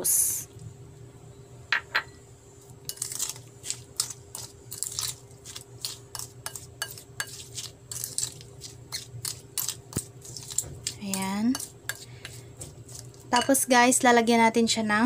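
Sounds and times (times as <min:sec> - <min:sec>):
wooden spoon scraping glass bowl: 0:02.9 - 0:13.8.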